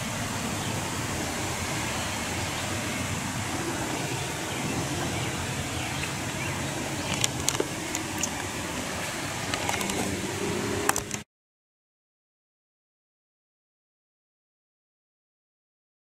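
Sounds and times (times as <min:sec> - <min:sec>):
hissing outdoor background noise: 0:00.0 - 0:11.2.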